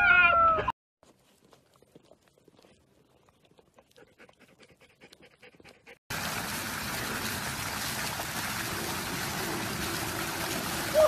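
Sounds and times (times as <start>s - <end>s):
dogs licking wetly: 1.0s - 10.9s
fountain water splashing: 6.1s - 11.0s.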